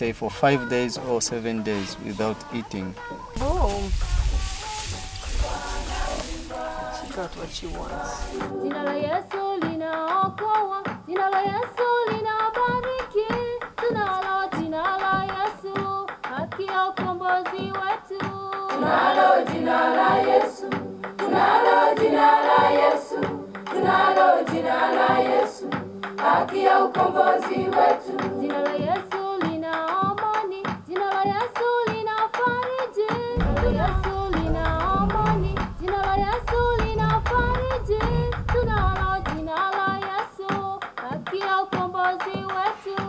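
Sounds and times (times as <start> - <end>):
gospel song with lead voice: 0.0 - 43.0
choir singing: 0.3 - 9.6, 18.7 - 29.4, 33.4 - 39.8.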